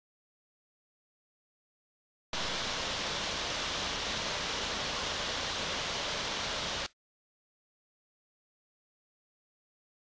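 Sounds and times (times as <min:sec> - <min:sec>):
waterfall pouring over rocks: 0:02.4 - 0:06.9.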